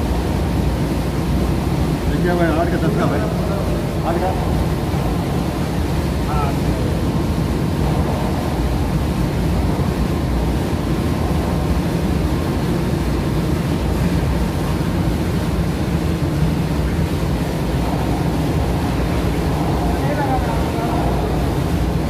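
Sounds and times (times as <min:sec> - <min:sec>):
machinery droning: 0:00.0 - 0:22.0.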